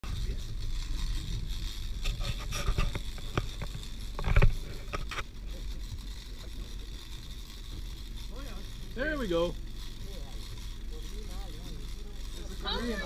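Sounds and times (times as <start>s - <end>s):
knocks and clatters: 2.0s - 5.3s.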